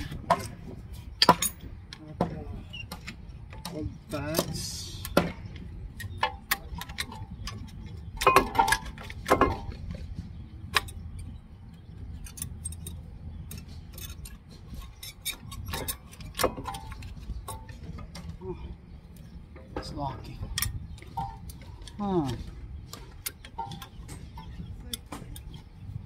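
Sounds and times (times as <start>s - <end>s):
metallic clicks and clinks: 12.0s - 18.1s.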